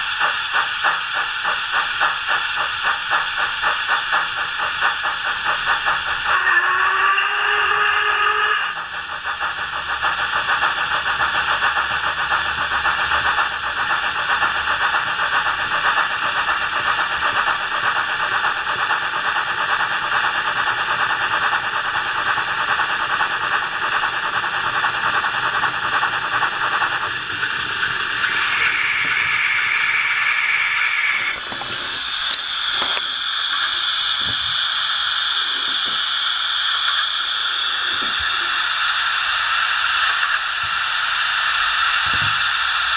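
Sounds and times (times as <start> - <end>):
steam locomotive chuffing: 0.0 - 42.9.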